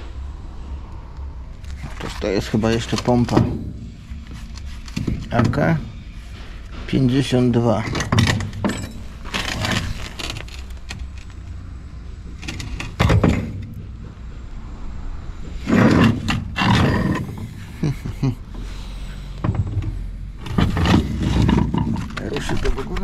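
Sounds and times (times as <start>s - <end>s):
low steady rumble: 0.0s - 23.0s
metal knocking and scraping on metal: 1.6s - 11.4s, 12.3s - 14.5s, 15.4s - 18.0s, 19.4s - 23.0s.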